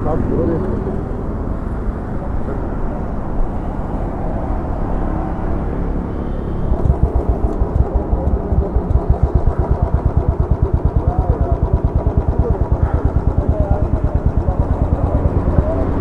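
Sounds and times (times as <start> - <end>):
person talking: 0.0 - 1.1
motorcycle engine idling: 0.0 - 16.0.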